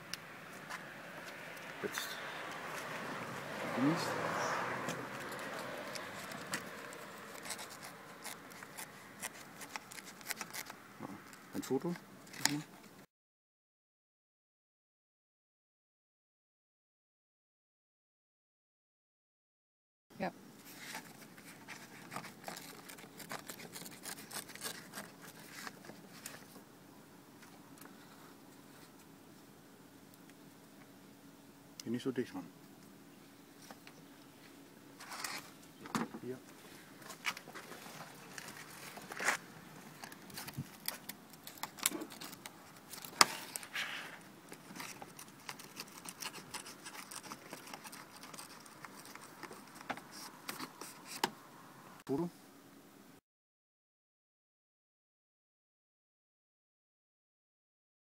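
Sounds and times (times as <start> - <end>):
plastic trim clicks and scrapes: 5.2 - 10.8, 44.5 - 51.3.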